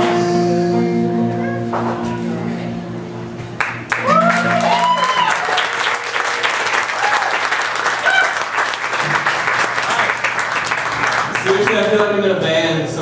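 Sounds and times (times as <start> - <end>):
audience applauding: 3.6 - 12.4.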